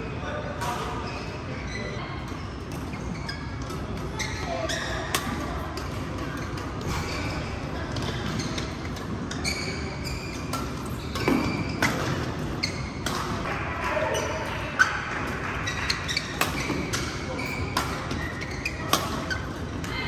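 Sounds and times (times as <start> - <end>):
sneakers squeaking on court: 1.0 - 13.4, 15.6 - 20.0
racket hitting shuttlecock: 10.5 - 13.6, 15.2 - 19.4.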